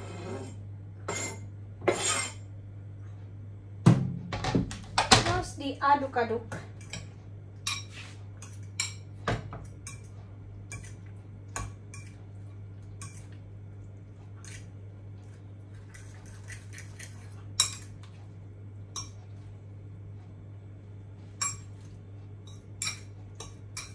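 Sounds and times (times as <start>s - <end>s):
fork clinking against a bowl: 6.8s - 12.2s, 15.9s - 18.0s, 18.9s - 19.2s, 21.4s - 21.8s, 22.4s - 23.9s.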